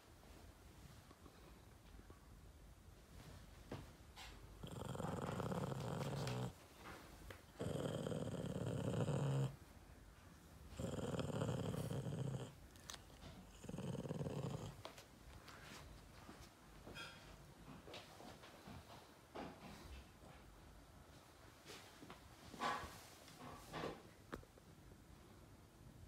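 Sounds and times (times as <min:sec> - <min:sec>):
dog growling: 0:04.6 - 0:06.6, 0:07.5 - 0:09.6, 0:10.7 - 0:14.9.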